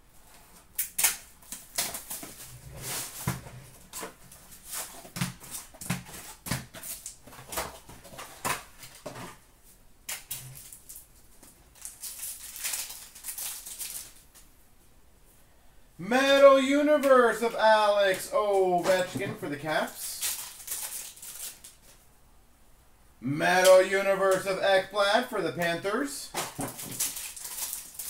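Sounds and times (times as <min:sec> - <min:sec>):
wrapper crinkling and tearing: 0:10.1 - 0:14.4, 0:19.8 - 0:22.0, 0:26.3 - 0:28.0.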